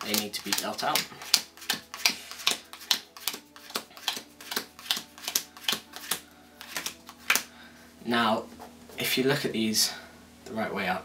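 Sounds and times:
playing cards clicking onto table: 0.0s - 7.5s.

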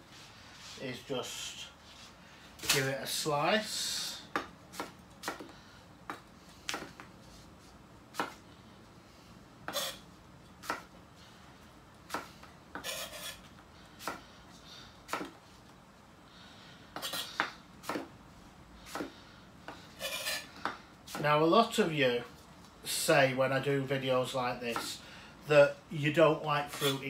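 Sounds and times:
knife scraping on board: 9.7s - 10.0s, 12.8s - 13.5s, 20.0s - 20.5s.

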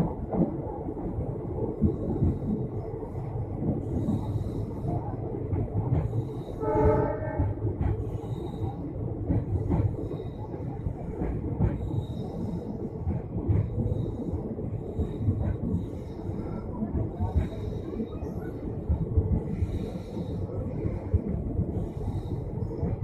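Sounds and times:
train wheels rumbling on track: 0.0s - 23.0s
train horn blast: 6.6s - 7.6s.

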